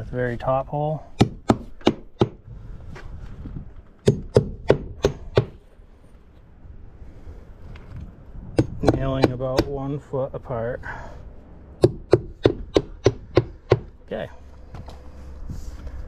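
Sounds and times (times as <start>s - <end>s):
hammer driving nails: 1.2s - 2.4s, 4.0s - 5.6s, 8.6s - 9.7s, 11.8s - 13.9s.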